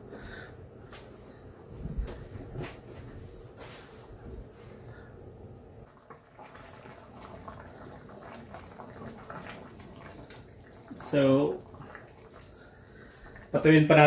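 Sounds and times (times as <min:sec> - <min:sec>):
sauce bubbling in a pan: 0:05.8 - 0:14.0.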